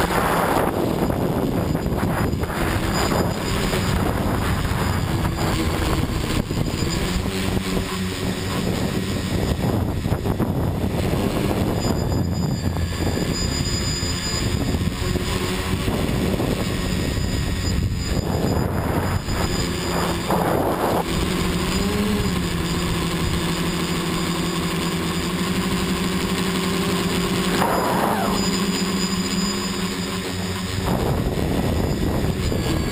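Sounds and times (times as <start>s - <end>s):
wind on microphone: 0.0s - 23.5s, 30.4s - 32.9s
drone propellers whirring: 0.0s - 32.9s.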